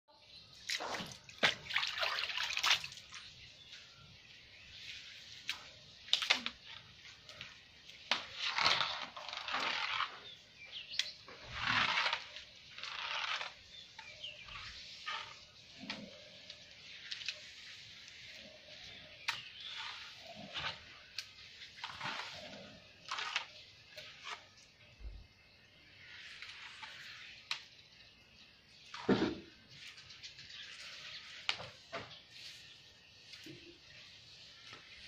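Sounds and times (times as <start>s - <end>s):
wet mop scrubbing tiled floor: 0.7s - 24.9s, 25.8s - 27.7s, 28.9s - 35.0s.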